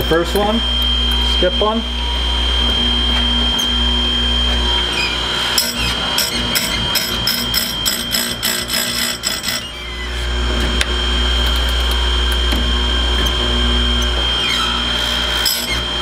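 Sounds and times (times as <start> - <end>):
chain grinder motor whine: 0.0 - 16.0
grinding wheel striking metal: 4.9 - 9.7, 11.4 - 16.0.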